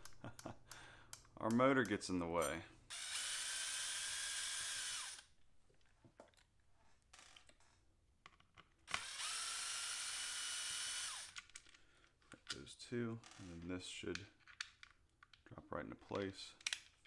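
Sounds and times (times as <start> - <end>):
electric screwdriver motor whine: 2.9 - 5.3, 8.9 - 11.4.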